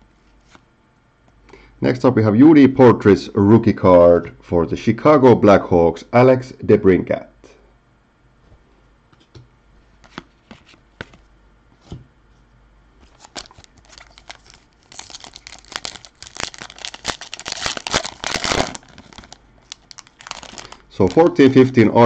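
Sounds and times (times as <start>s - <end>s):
plastic wrapper crinkling and tearing: 13.0s - 21.8s.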